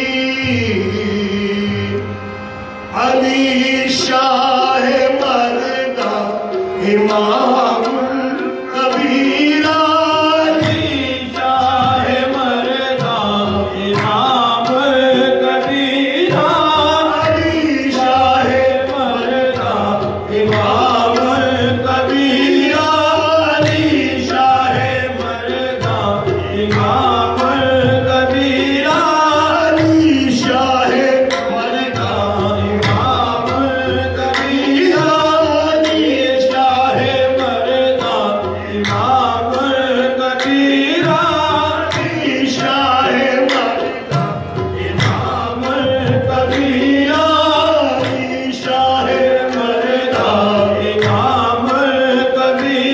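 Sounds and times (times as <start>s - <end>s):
tabla drumming: 0.0s - 52.9s
voices singing and chanting: 0.0s - 52.9s.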